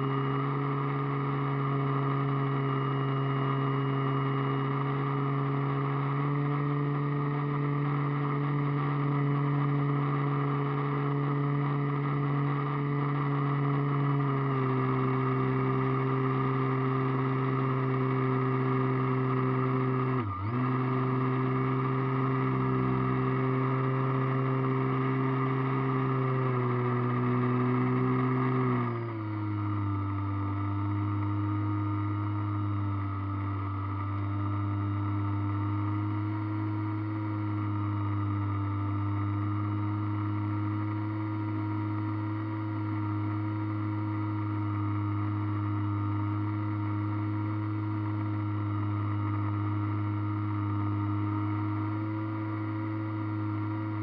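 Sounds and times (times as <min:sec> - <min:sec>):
model airplane motor drone: 0:00.0 - 0:00.4.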